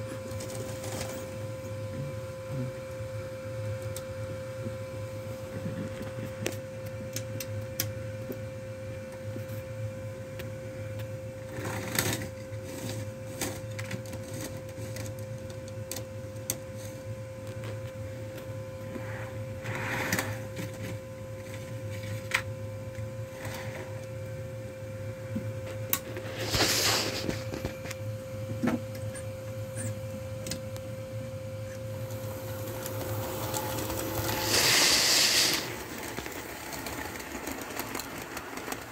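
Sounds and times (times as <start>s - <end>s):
model train whirring hum: 0.0s - 38.9s
wheels clicking on track: 32.1s - 38.9s.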